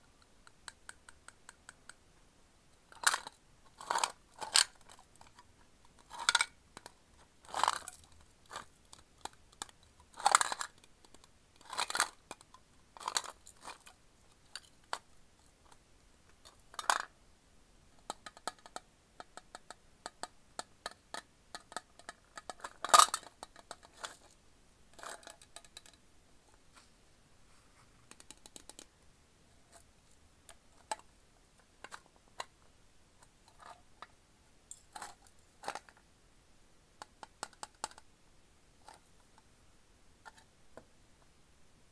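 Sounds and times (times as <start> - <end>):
candy rattling in a metal tin: 3.0 - 5.3, 6.0 - 6.6, 7.4 - 8.7, 9.6 - 10.8, 13.0 - 13.9.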